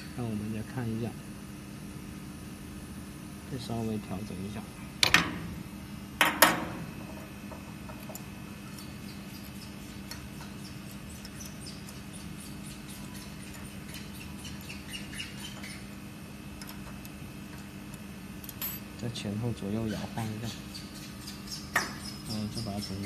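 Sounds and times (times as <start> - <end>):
machine humming: 0.0 - 21.1
small squeaks: 8.6 - 15.9.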